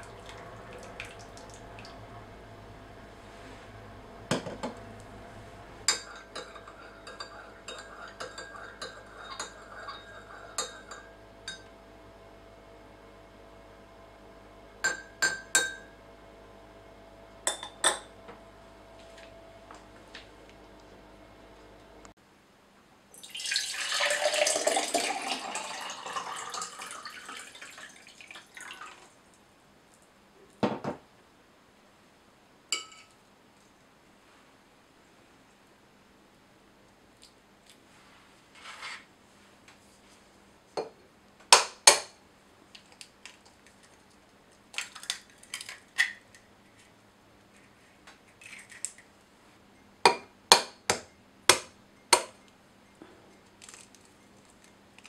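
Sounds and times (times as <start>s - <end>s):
teaspoon stirring in ceramic mug: 5.9s - 11.6s
glass clink: 5.9s - 11.7s, 14.8s - 15.9s, 17.5s - 18.1s, 32.7s - 33.2s
water pouring into a glass: 23.2s - 29.1s.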